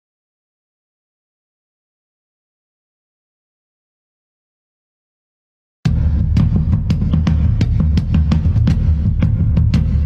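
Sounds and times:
heavy deep bass: 5.9 - 10.0.

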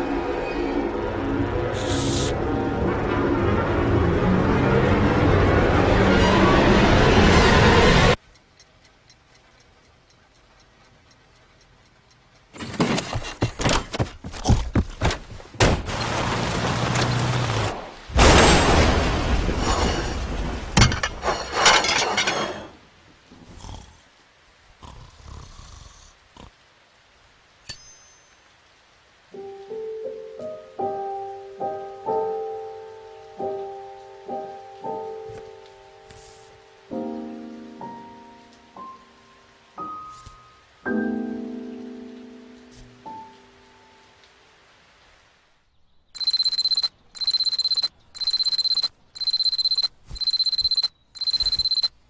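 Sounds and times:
metallic ting: 27.6 - 28.4
soft piano notes: 29.4 - 44.4
alarm clock trilling beep: 46.2 - 51.9.

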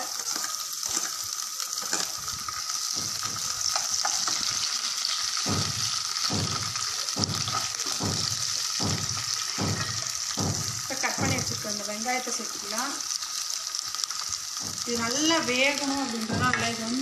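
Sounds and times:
spatula stirring and scraping: 0.0 - 11.7
garlic sizzling in hot oil: 0.0 - 17.0.

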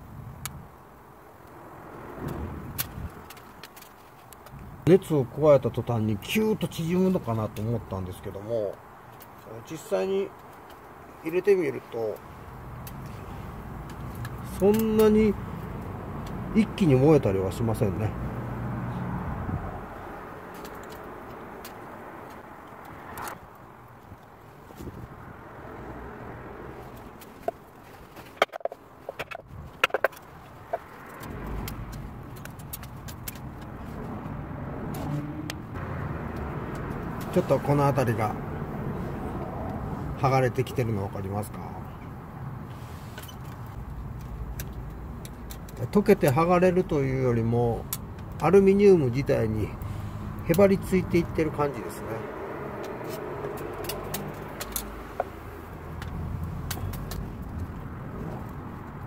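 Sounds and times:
wooden kindling clacking: 27.2 - 31.2.

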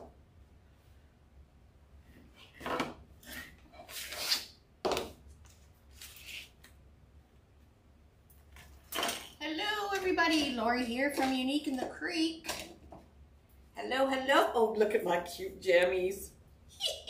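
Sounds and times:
objects rustling and knocking: 8.4 - 13.2.

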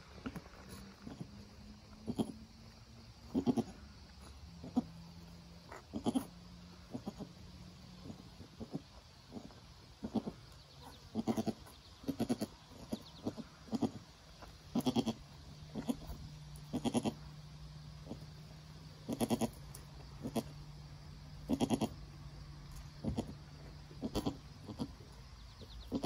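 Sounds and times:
goat bleating: 3.3 - 3.8, 5.7 - 6.3, 11.2 - 14.0, 14.7 - 17.2, 19.0 - 19.6, 20.2 - 20.6, 21.4 - 22.0, 24.0 - 25.0.

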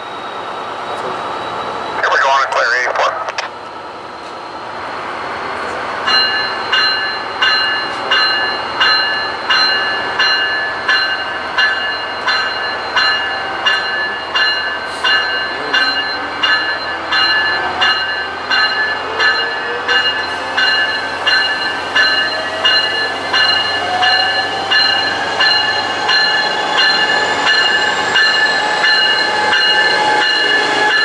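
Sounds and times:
train rumble: 0.0 - 31.0
bell ringing: 6.1 - 31.0.

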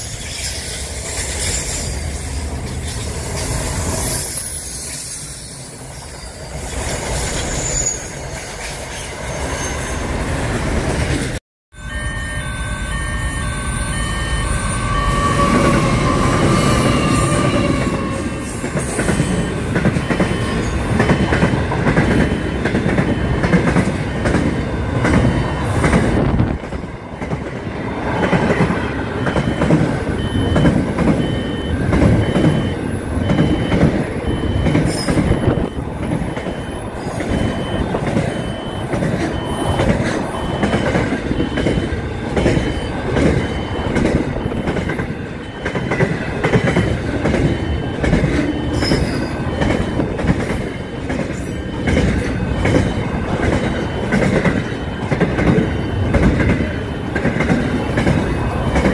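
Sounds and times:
wheel squeal: 0.0 - 10.1, 47.4 - 50.0
freight train wheels clattering: 15.6 - 58.9.

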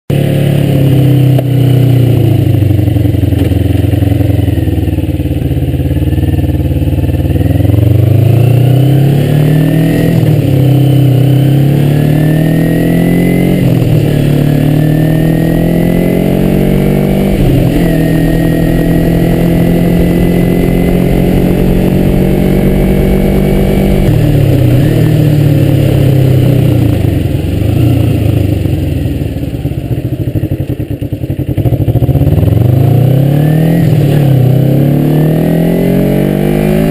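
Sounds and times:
motorcycle engine shifting gears: 0.1 - 36.9.

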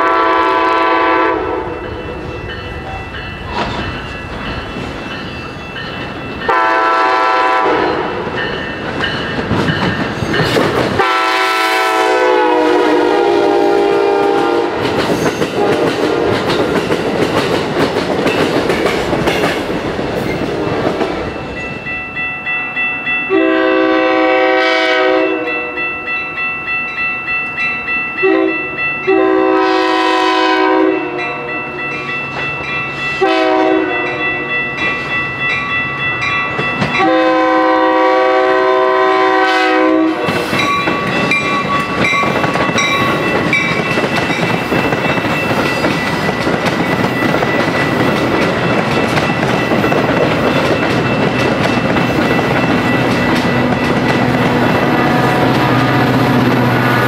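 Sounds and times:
train horn: 0.0 - 1.9, 6.5 - 8.3, 11.0 - 15.0, 15.6 - 16.5, 23.3 - 25.9, 28.2 - 31.8, 33.2 - 34.7, 37.0 - 40.5, 54.4 - 57.0
train cars rumbling and clacking: 0.0 - 57.0
crossing bell ringing: 1.1 - 15.7, 20.3 - 57.0.

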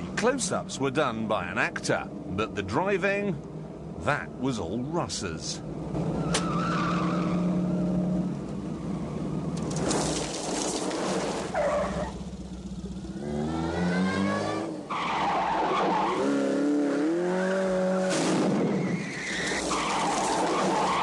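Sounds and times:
car engine revving: 12.0 - 14.9.

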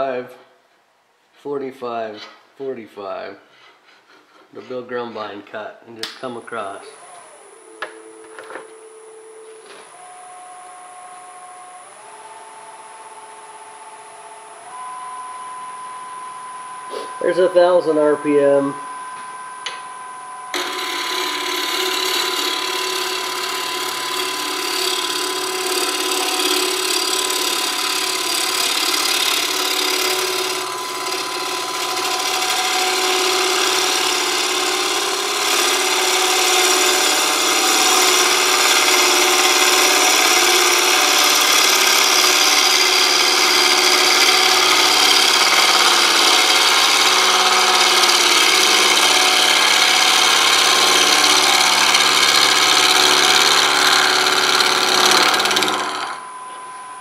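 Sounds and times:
gouge cutting wood on lathe: 20.5 - 56.2
lathe motor hum: 20.5 - 56.4.

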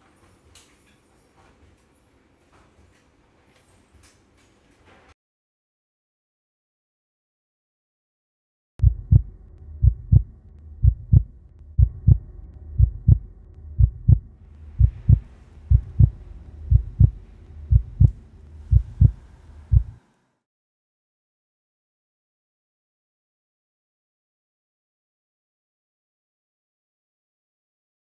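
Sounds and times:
heartbeat thumps: 8.8 - 20.0
low steady hum: 8.8 - 20.4.

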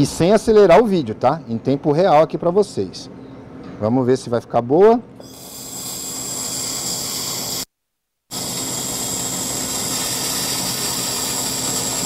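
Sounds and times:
hiss of gas and welding: 5.2 - 7.7, 8.3 - 12.0.

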